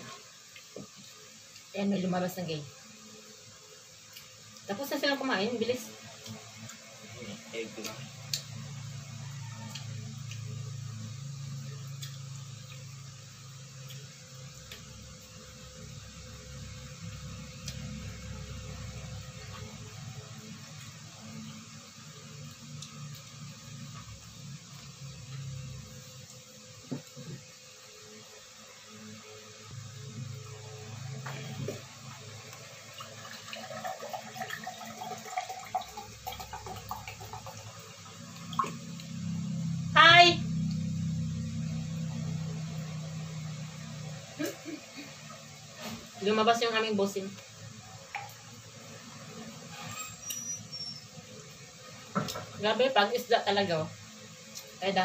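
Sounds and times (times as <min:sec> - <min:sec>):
steady low hum: 0:00.0 - 0:33.1, 0:35.6 - 0:49.8
washing machine running: 0:29.7 - 0:47.0
water running from tap: 0:31.4 - 0:39.5, 0:48.1 - 0:48.5.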